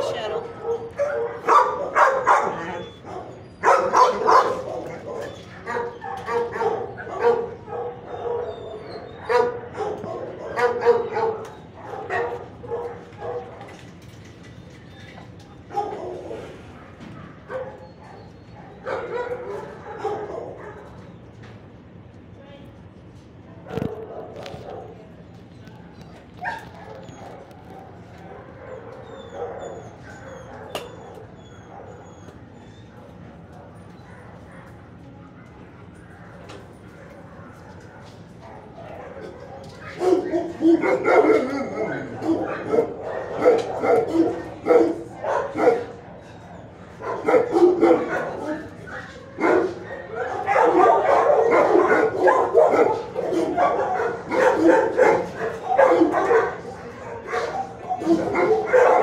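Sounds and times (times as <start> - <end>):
dogs barking: 0.0 - 14.2, 15.6 - 21.2, 23.6 - 59.0.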